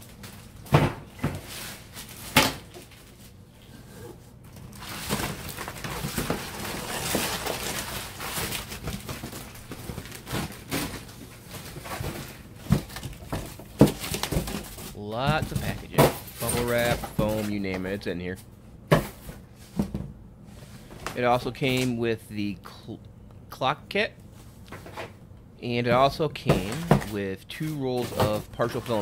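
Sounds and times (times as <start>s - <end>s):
bubble wrap and cardboard crinkling: 1.4s - 3.4s, 4.6s - 18.0s, 25.9s - 29.0s
sharp knocks and bumps: 12.6s - 17.6s.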